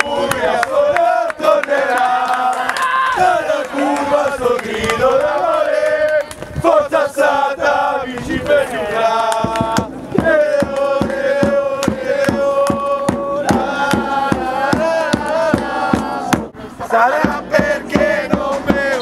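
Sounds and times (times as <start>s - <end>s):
men singing long held notes: 0.0s - 19.0s
steady drumbeat: 9.2s - 19.0s.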